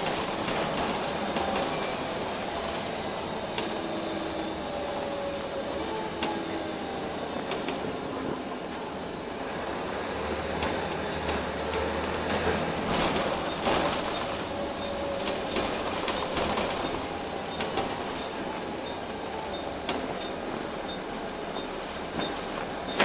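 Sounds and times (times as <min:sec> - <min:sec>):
rattles and knocks from bus body: 0:00.0 - 0:02.0, 0:10.4 - 0:19.0
bus engine and road rumble: 0:00.0 - 0:23.0.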